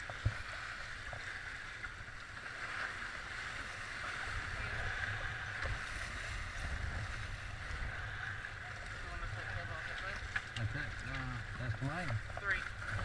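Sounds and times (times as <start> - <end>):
water rushing along boat hulls: 0.0 - 13.0
wind rumbling on microphone: 0.0 - 13.0.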